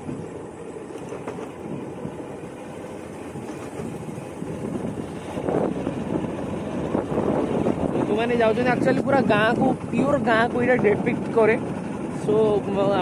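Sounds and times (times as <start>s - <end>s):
motorcycle engine running: 3.2s - 13.0s.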